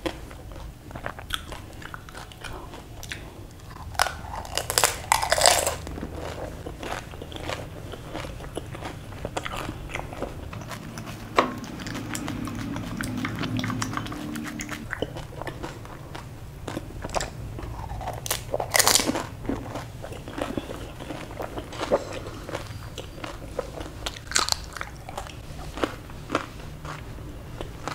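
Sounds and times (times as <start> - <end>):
wet chewing and mouth clicks: 0.0 - 27.9
crunchy bite: 3.0 - 10.6, 11.6 - 23.4.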